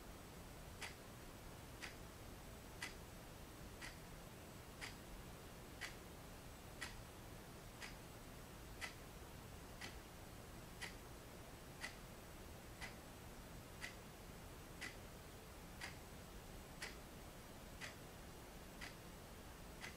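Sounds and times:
wall clock ticking: 0:00.8 - 0:01.0, 0:01.8 - 0:02.0, 0:02.8 - 0:03.0, 0:03.7 - 0:04.1, 0:04.8 - 0:05.1, 0:05.7 - 0:06.0, 0:06.8 - 0:07.0, 0:07.8 - 0:08.0, 0:08.7 - 0:10.1, 0:10.8 - 0:11.0, 0:11.8 - 0:12.0, 0:12.8 - 0:13.1, 0:13.7 - 0:14.1, 0:14.8 - 0:15.1, 0:15.7 - 0:16.1, 0:16.8 - 0:17.1, 0:17.8 - 0:18.1, 0:18.8 - 0:19.1, 0:19.7 - 0:19.9.

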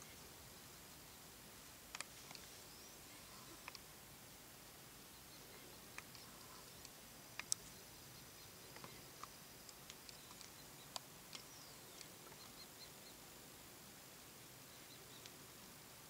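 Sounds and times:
sharp clicks: 0:01.9 - 0:02.5, 0:03.6 - 0:03.9, 0:05.9 - 0:07.8, 0:08.6 - 0:12.6.

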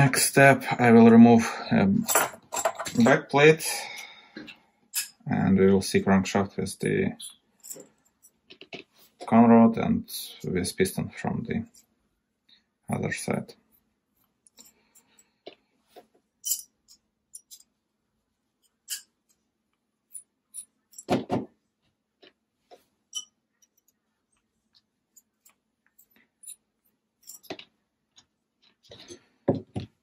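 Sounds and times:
small metal parts clicking: 0:16.4 - 0:17.7, 0:25.2 - 0:26.6, 0:27.2 - 0:27.7.

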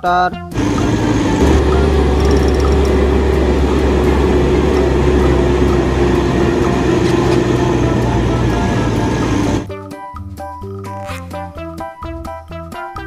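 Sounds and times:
toy truck motor running: 0:00.6 - 0:09.7.

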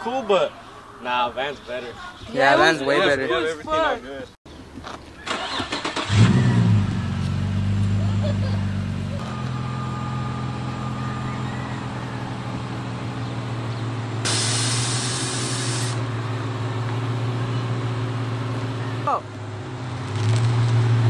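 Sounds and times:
hiss of spray: 0:14.2 - 0:16.0.

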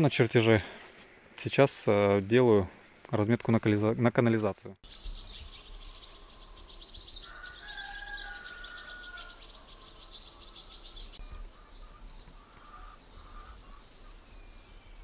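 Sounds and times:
low drawn-out bird call: 0:04.8 - 0:15.0
small birds chirping: 0:04.8 - 0:15.0.

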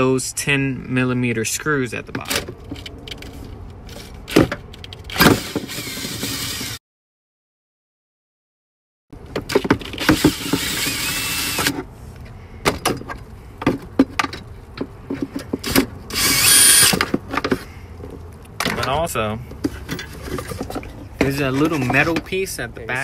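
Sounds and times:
cordless drill whining: 0:05.1 - 0:06.8, 0:10.0 - 0:11.8, 0:16.1 - 0:17.0.

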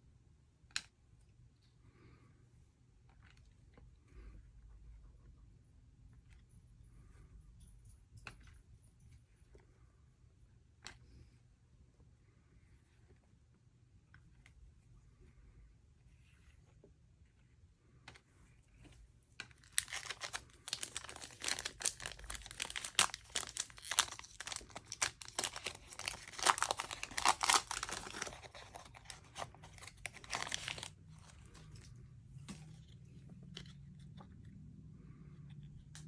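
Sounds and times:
foil wrapper crinkling: 0:19.6 - 0:31.9.

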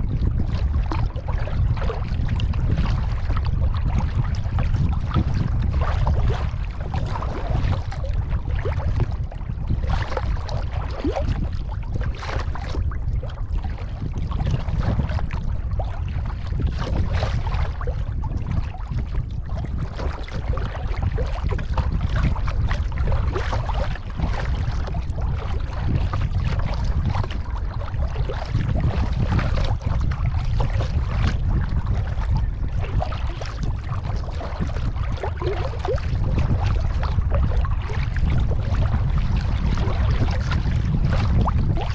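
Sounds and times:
wind rumble on microphone: 0:00.0 - 0:41.9
paddle splashing in water: 0:19.6 - 0:41.9.

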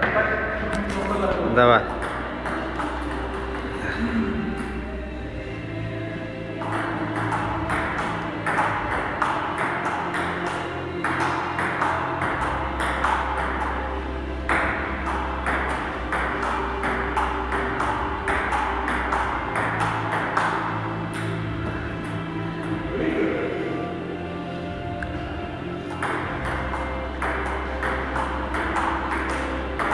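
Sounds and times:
table tennis ball clicking: 0:25.9 - 0:29.9.

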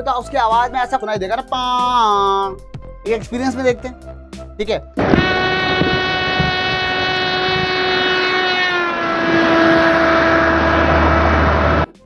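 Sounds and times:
car horn passing: 0:05.0 - 0:11.9
car road noise: 0:05.0 - 0:11.9.

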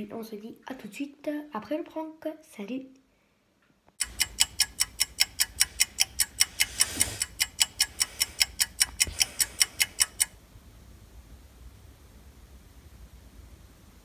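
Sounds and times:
rapid regular ticking: 0:04.0 - 0:10.4
faint hiss: 0:05.6 - 0:14.0.

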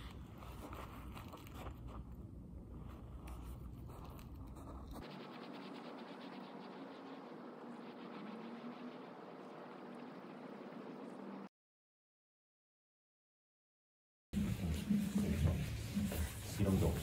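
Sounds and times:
steady hiss with low hum: 0:00.0 - 0:11.5.

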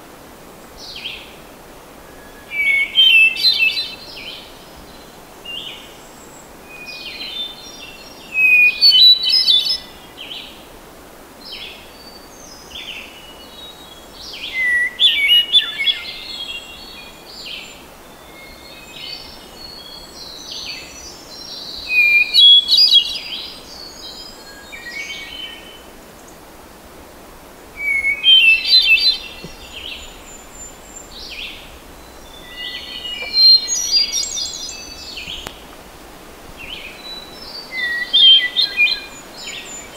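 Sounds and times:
faint bird song: 0:00.0 - 0:10.7, 0:11.4 - 0:39.9
background hiss: 0:00.0 - 0:39.9.

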